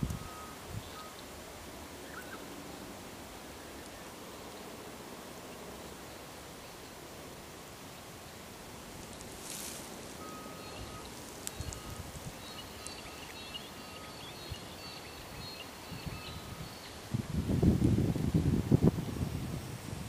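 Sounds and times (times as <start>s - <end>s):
wind buffeting microphone: 0.0s - 1.1s, 14.4s - 20.0s
steady hiss: 0.0s - 20.0s
small birds chirping: 2.0s - 2.9s, 9.0s - 17.1s.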